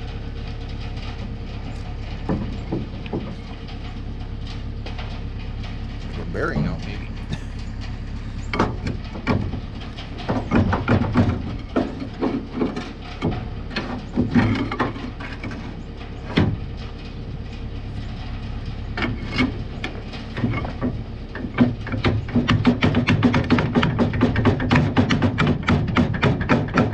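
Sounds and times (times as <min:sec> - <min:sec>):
steady low rumble: 0:00.0 - 0:24.7
hammer knocking on metal: 0:10.3 - 0:12.0, 0:21.5 - 0:26.9.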